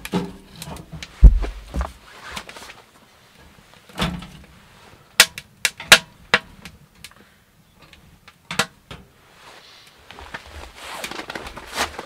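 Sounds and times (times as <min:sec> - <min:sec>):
sharp wooden knocks and cracks: 0:00.0 - 0:02.0, 0:05.2 - 0:07.2
dull thud of firewood: 0:01.2 - 0:02.0.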